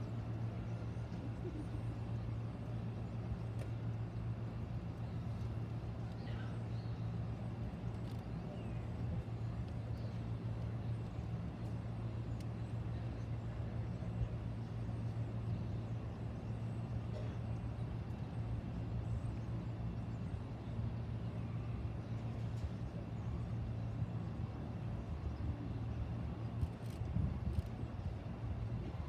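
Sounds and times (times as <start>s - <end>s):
low hum: 0.0s - 29.0s
open-air ambience: 0.0s - 29.0s.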